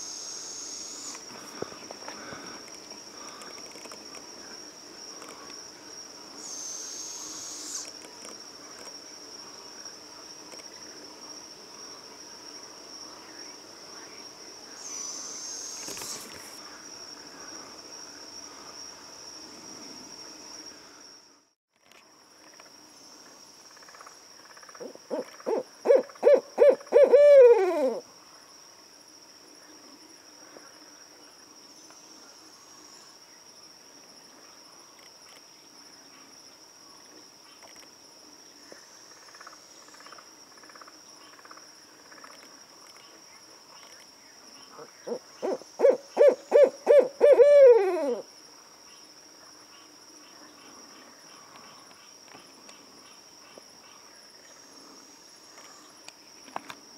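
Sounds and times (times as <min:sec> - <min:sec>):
owl hooting: 0:06.4 - 0:07.9, 0:24.8 - 0:28.0, 0:45.1 - 0:48.2.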